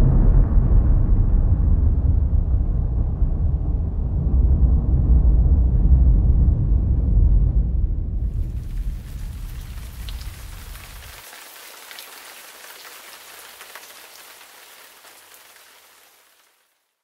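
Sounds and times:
deep rumble: 0:00.0 - 0:11.2
rain hiss and patter: 0:08.2 - 0:16.9.

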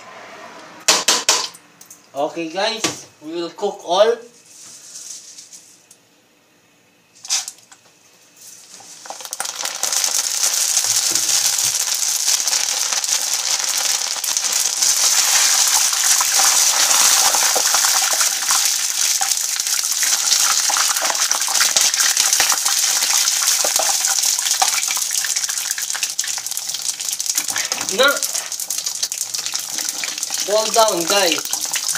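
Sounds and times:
sharp knock: 0:00.9 - 0:01.5
pasta sizzling in hot oil: 0:08.4 - 0:31.9.

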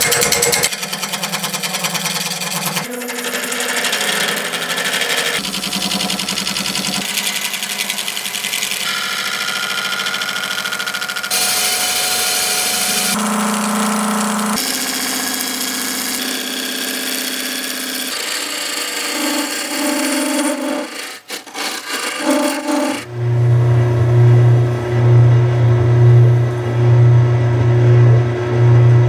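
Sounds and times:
gouge scraping spinning wood: 0:00.0 - 0:23.1
lathe motor hum: 0:00.0 - 0:29.0.

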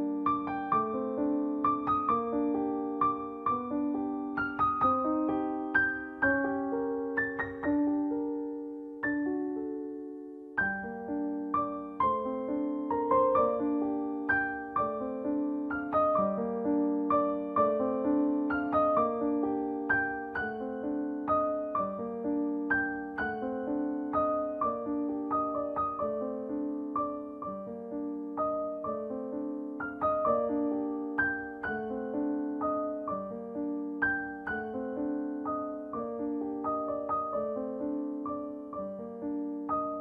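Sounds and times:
slow piano music: 0:00.0 - 0:40.0.

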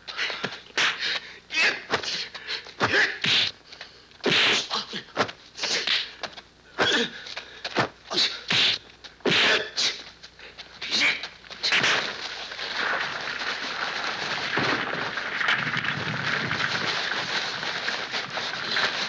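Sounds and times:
fighters grunting and crying out: 0:06.8 - 0:07.2.

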